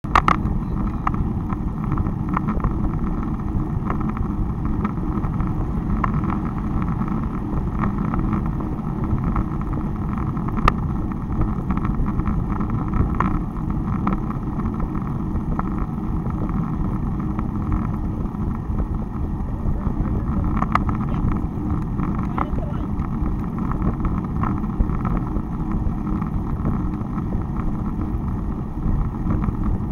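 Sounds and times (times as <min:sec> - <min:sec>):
wind on microphone: 0:00.1 - 0:29.9.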